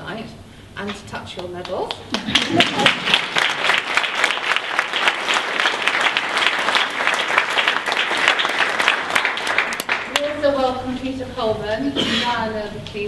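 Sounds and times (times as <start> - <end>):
audience applauding: 1.9 - 10.3.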